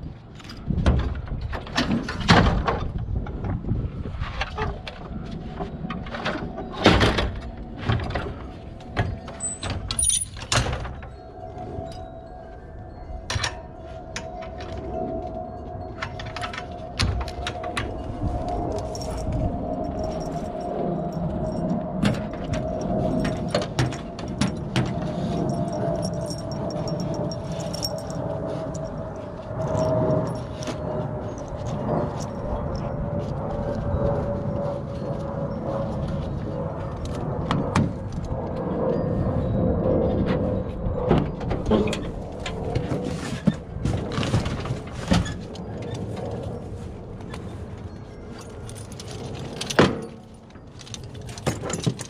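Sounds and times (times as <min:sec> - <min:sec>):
metal clicks and clinks: 0:09.2 - 0:11.2, 0:16.0 - 0:32.9, 0:48.3 - 0:52.0
steady hum sinking in pitch: 0:10.9 - 0:49.3.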